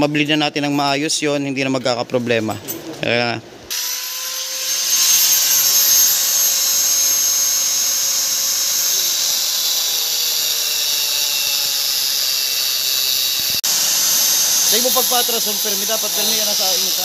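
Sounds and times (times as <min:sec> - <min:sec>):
angle grinder grinding steel: 0:03.7 - 0:17.0.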